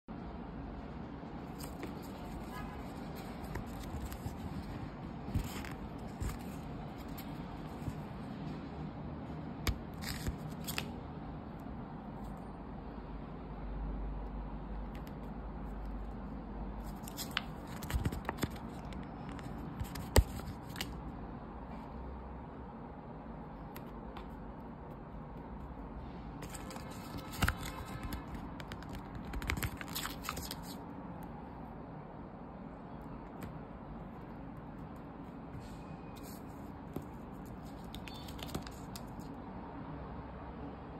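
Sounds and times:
low background hum: 0.1s - 40.9s
paper crackling and rustling: 1.4s - 8.3s, 9.6s - 11.0s, 16.8s - 21.0s, 26.4s - 30.8s, 36.2s - 39.3s.

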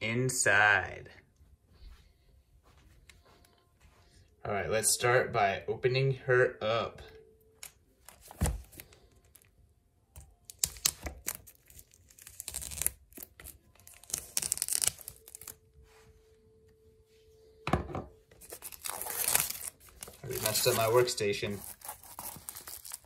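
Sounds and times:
plastic shrink-wrap tearing: 10.4s - 15.6s, 18.4s - 23.0s.

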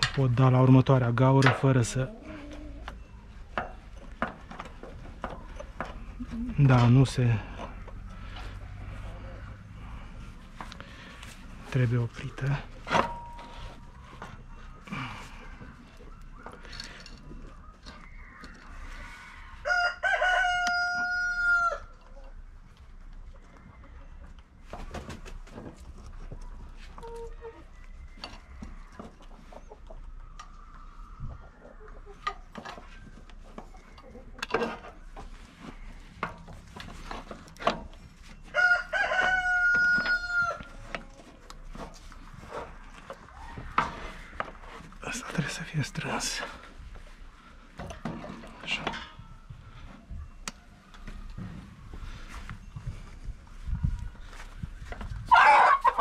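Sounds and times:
rooster crowing: 19.0s - 21.9s, 38.5s - 40.7s.

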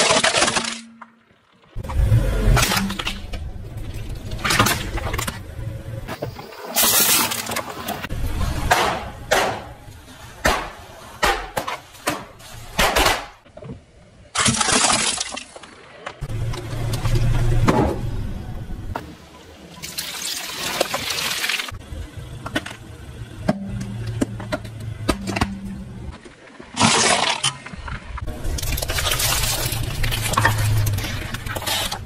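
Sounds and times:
tyre crushing brittle objects: 0.0s - 1.2s, 26.7s - 32.0s
low tyre rumble: 1.6s - 6.4s, 7.6s - 11.2s, 16.2s - 19.7s, 21.7s - 26.7s, 27.7s - 32.0s.

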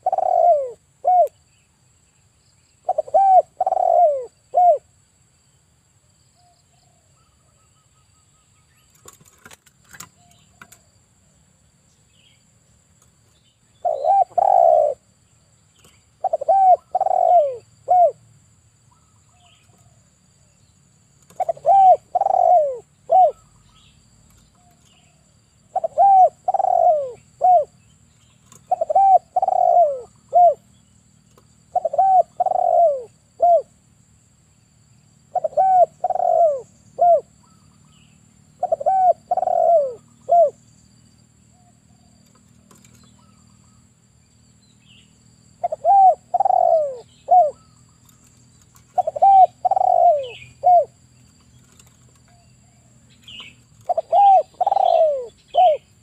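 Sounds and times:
dove cooing: 0.0s - 1.4s, 2.8s - 4.9s, 13.8s - 15.1s, 16.2s - 18.3s, 21.2s - 23.8s, 24.6s - 27.8s, 28.4s - 30.7s, 31.7s - 33.8s, 35.3s - 37.9s, 38.6s - 40.6s, 45.6s - 51.0s, 51.6s - 56.0s.

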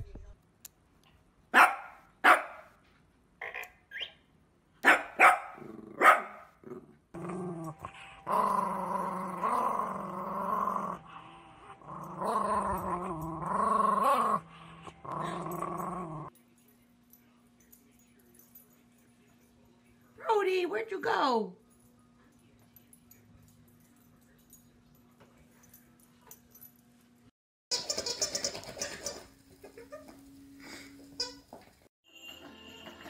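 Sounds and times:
dog barking sharply: 1.5s - 2.7s, 4.8s - 6.5s
small dog growling: 5.6s - 16.3s.

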